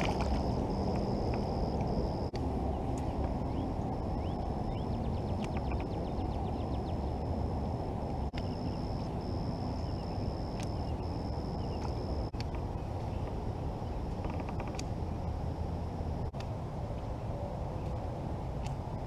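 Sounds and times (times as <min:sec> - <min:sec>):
wind rumble on microphone: 0:00.0 - 0:19.0
birds chirping: 0:08.4 - 0:15.3.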